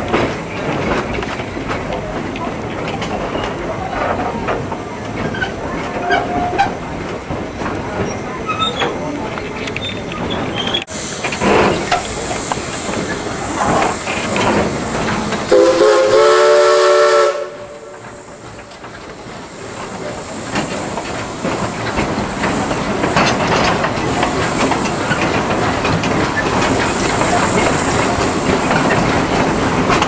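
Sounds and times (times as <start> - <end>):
wheels clicking over rail joints: 0.0 - 16.6, 17.6 - 30.0
steam hissing: 9.8 - 30.0
steam locomotive chime whistle: 15.5 - 18.1.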